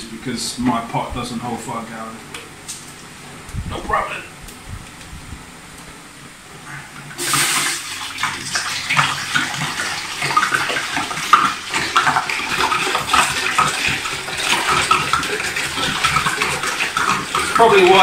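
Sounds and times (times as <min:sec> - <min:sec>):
water pouring into a pot: 0:07.1 - 0:18.0.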